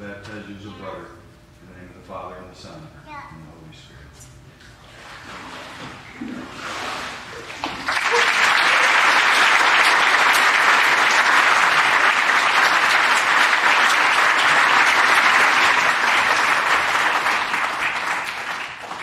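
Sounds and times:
congregation applauding: 7.4s - 19.0s.

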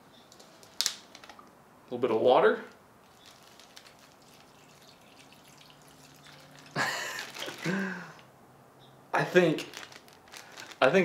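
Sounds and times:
plastic bag rustling and crinkling: 3.0s - 8.2s, 9.2s - 11.0s
water trickling into bag: 3.0s - 8.2s, 9.4s - 11.0s.

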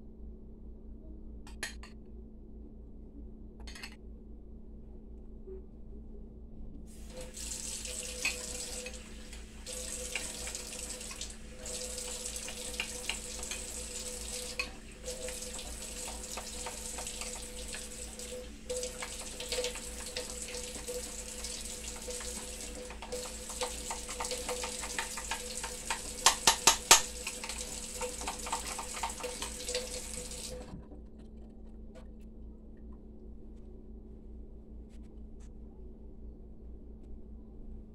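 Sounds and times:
tap running water: 7.0s - 30.9s.

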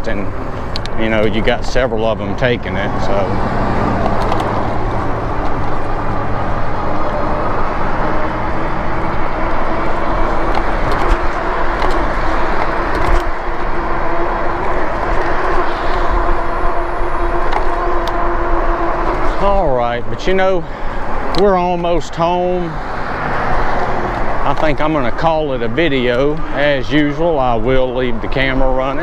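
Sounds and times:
electric bike motor and tyres hum: 0.0s - 29.0s
wind rushing over microphone: 0.0s - 29.0s.

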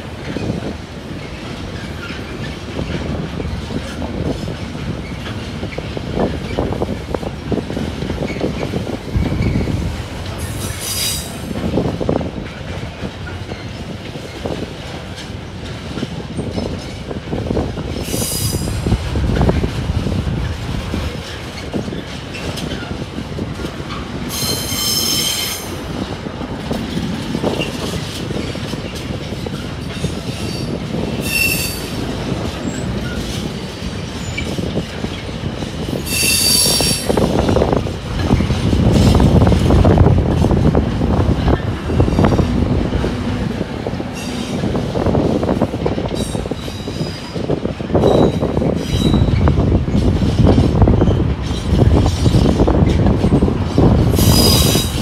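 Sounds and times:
train wheels rumbling on rails: 0.0s - 55.0s
high-pitched wheel squealing: 24.3s - 25.7s, 30.3s - 31.9s, 36.0s - 37.2s, 54.1s - 55.0s.

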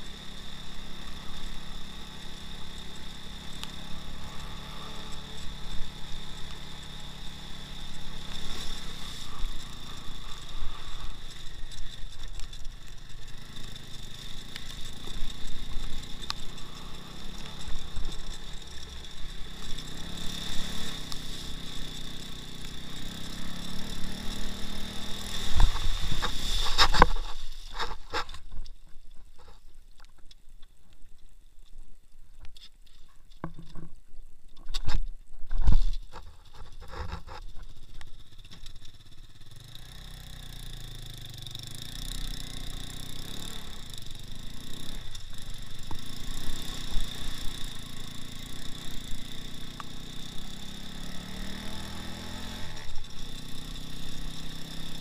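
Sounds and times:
motorcycle engine revving: 0.0s - 28.4s, 36.8s - 55.0s
faint scrapes and clicks: 7.8s - 22.8s, 25.3s - 39.1s.

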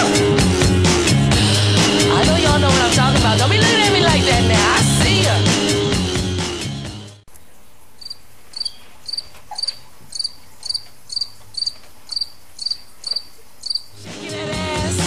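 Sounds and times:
music: 0.0s - 7.2s, 14.0s - 15.0s
cricket chirping: 7.3s - 14.0s.

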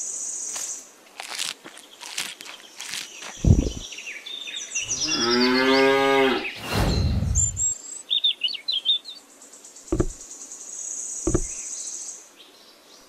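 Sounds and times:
birds chirping: 1.7s - 7.8s
cow mooing: 4.9s - 6.6s
low rushing noise: 6.6s - 7.8s
low thump: 10.0s - 10.2s, 11.3s - 11.6s.

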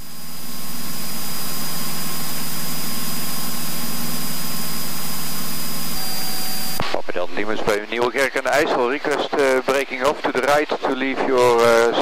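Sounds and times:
propeller plane engine droning: 0.0s - 6.8s
thin steady whine: 0.0s - 12.0s.

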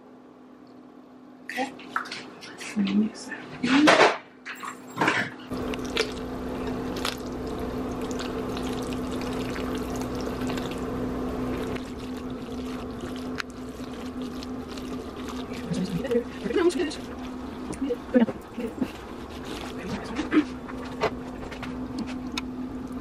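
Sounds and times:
low steady hum: 0.0s - 23.0s
water running from faucet: 5.5s - 18.9s.

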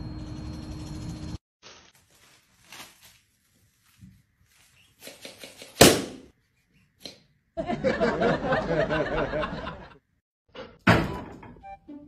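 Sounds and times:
sharp smack: 5.8s - 6.3s.

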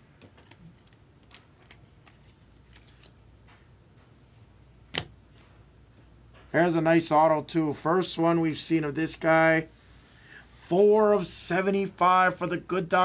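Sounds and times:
trading cards rustling: 0.6s - 3.2s.

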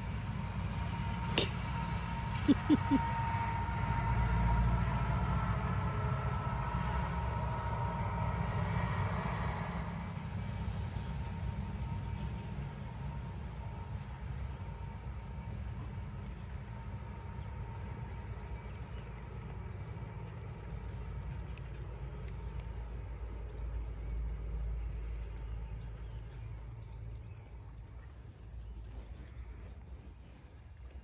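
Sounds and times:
steady low rumble: 0.0s - 31.0s
small birds chirping: 16.0s - 21.8s, 22.4s - 31.0s.

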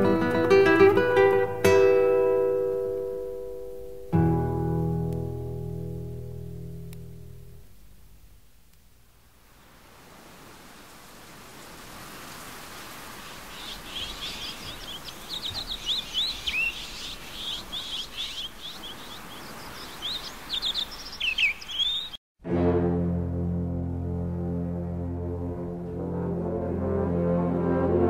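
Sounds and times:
steady outdoor hiss: 0.0s - 22.2s
birds chirping: 11.5s - 22.2s.

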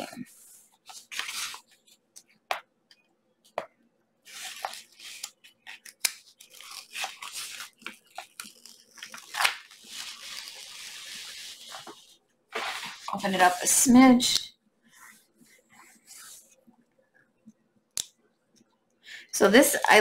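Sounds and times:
wrapping crinkling and rustling: 0.4s - 2.2s, 4.3s - 13.8s.

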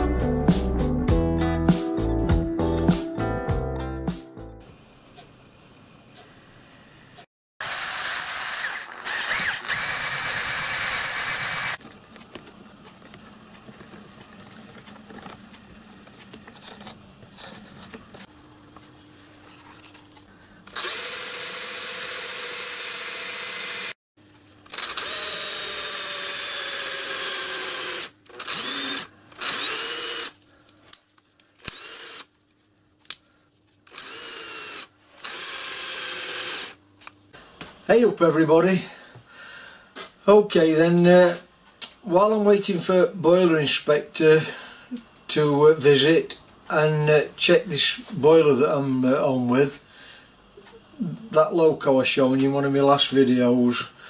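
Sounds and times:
cordless drill motor whining: 7.6s - 11.8s, 20.6s - 24.0s, 24.6s - 30.4s, 31.6s - 32.3s, 33.8s - 36.8s.

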